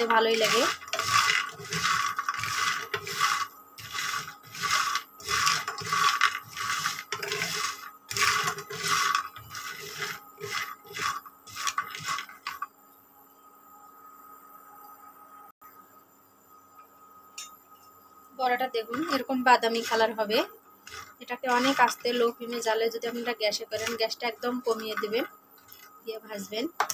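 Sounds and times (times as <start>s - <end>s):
dry pieces rattling against pan: 0.0s - 12.6s, 20.9s - 26.9s
wooden spatula stirring in pan: 0.0s - 12.7s, 18.9s - 20.2s, 20.8s - 25.9s.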